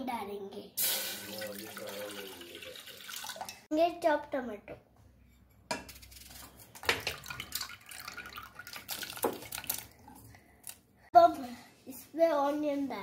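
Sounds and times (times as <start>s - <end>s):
tomato pieces splashing into water: 6.8s - 10.1s.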